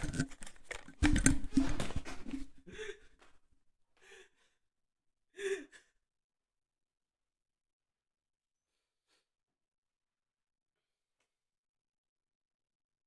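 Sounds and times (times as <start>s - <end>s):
thumps and rustling: 0.0s - 2.6s.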